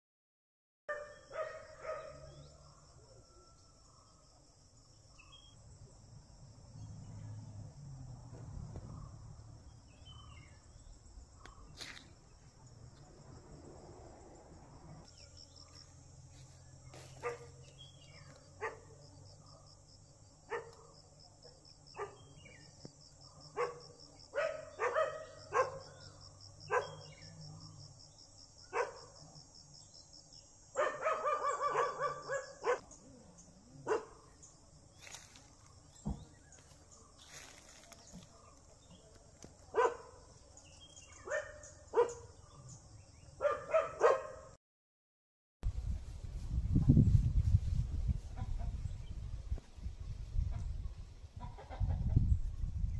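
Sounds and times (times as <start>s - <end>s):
dog barking: 0.9s - 2.4s, 17.2s - 17.6s, 18.6s - 19.8s, 20.5s - 21.0s, 21.9s - 22.3s, 23.4s - 27.3s, 28.7s - 29.2s, 30.8s - 33.0s, 33.8s - 34.4s, 39.7s - 40.3s, 41.2s - 42.6s, 43.4s - 44.6s
insects droning: 0.9s - 44.5s.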